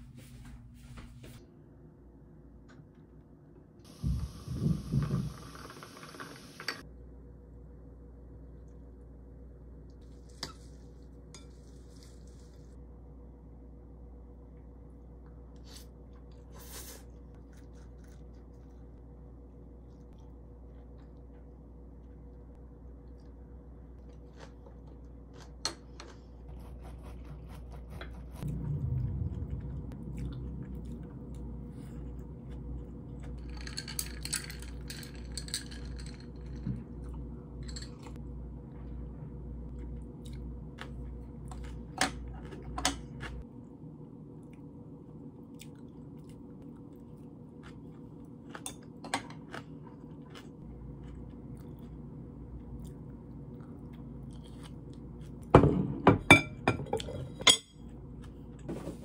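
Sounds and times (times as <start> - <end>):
chewing and crunching: 17.1 - 27.5, 29.4 - 37.3, 44.4 - 55.5.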